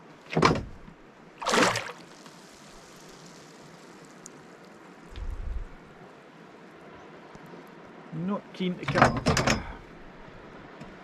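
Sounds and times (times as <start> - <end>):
water lapping at boat hull: 0.3 - 2.4
fish splashing at surface: 1.4 - 4.4.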